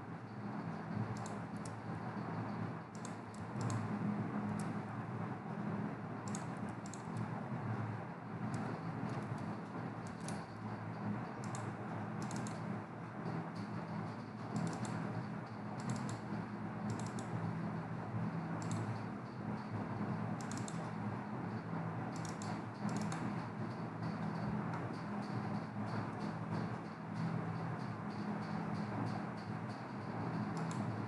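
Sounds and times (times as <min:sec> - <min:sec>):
steady low hum: 0:00.0 - 0:31.0
keyboard keystrokes: 0:02.9 - 0:03.8, 0:12.2 - 0:12.6, 0:15.8 - 0:16.2, 0:16.9 - 0:17.3, 0:18.6 - 0:18.9, 0:20.4 - 0:20.8
mouse clicks: 0:02.9 - 0:03.8, 0:06.3 - 0:07.0, 0:11.4 - 0:11.6, 0:12.2 - 0:12.6, 0:14.6 - 0:14.9, 0:15.8 - 0:16.2, 0:16.9 - 0:17.3, 0:18.6 - 0:18.9, 0:20.4 - 0:20.8.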